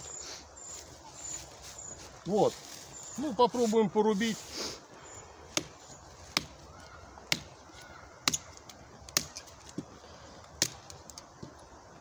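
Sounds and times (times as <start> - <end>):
knife chopping wooden branch: 5.5 - 6.6, 7.3 - 7.5, 8.2 - 9.9, 10.6 - 10.9.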